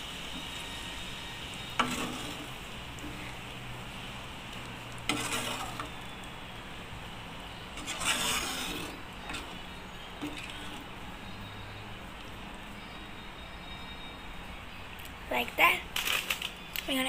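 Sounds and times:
ladle scraping in pot: 0:01.7 - 0:03.4, 0:05.0 - 0:06.0, 0:07.7 - 0:11.0.

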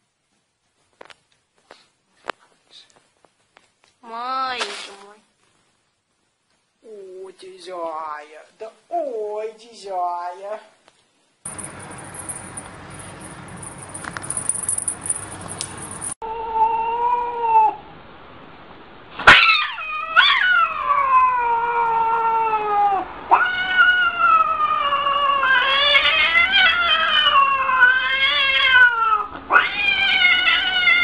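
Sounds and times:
cat yowling: 0:16.2 - 0:17.8, 0:19.3 - 0:31.0.

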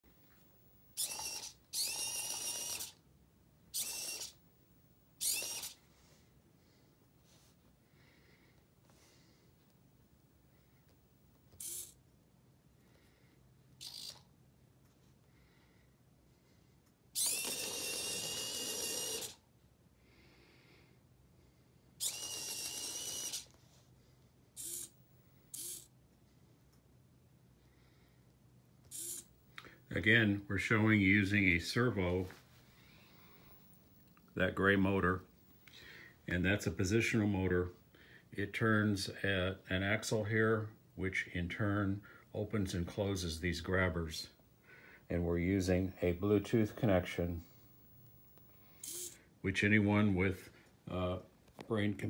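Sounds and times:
small electric motors whirring: 0:00.9 - 0:03.0, 0:03.7 - 0:04.4, 0:05.2 - 0:05.8, 0:11.6 - 0:12.0, 0:13.8 - 0:14.2, 0:17.2 - 0:19.4, 0:22.0 - 0:23.6, 0:24.6 - 0:25.9, 0:28.9 - 0:29.3, 0:46.1 - 0:49.2
steady high whine: 0:45.0 - 0:49.2.

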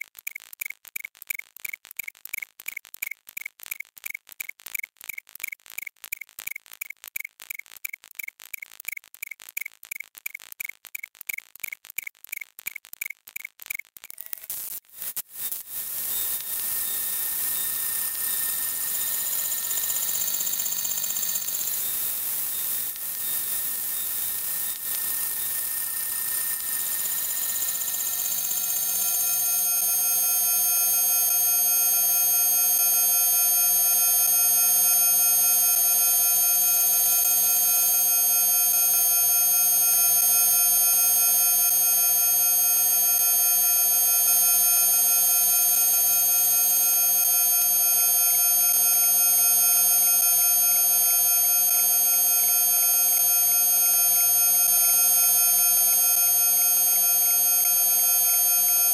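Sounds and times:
cluster of high electronic tones: 0:14.0 - 0:33.1
faint steady tones: 0:14.1 - 0:58.9.

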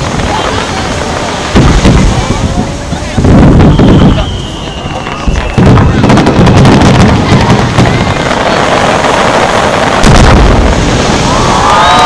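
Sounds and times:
deep firework boom: 0:00.0 - 0:12.0
fireworks crackling and popping: 0:00.0 - 0:12.0.

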